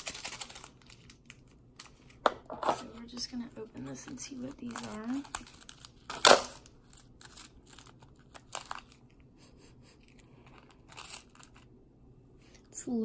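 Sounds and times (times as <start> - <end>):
plastic packet ripping: 0.0 - 2.2, 2.8 - 9.2, 10.0 - 11.8
wrapper crinkling: 0.0 - 9.2, 10.0 - 11.8.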